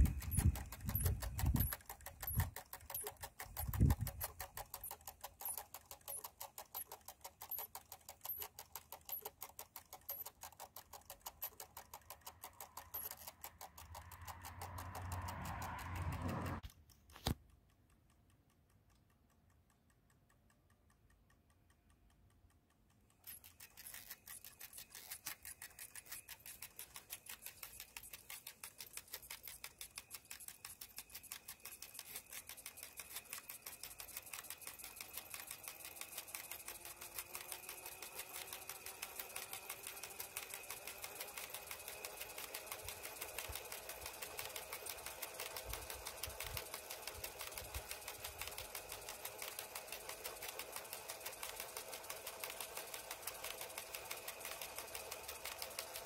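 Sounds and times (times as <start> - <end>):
sharp click: 0.0 - 22.0
fast mechanical ticking: 0.0 - 56.0.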